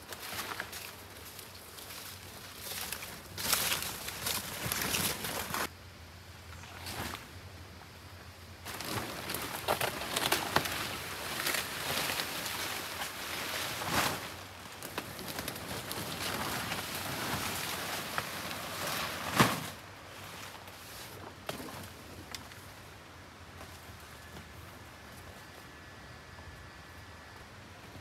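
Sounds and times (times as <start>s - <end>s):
crackles: 0.0s - 5.7s, 8.6s - 19.8s
footsteps on leaf litter: 0.0s - 5.7s
leaves rustling: 0.0s - 5.7s, 8.6s - 25.8s.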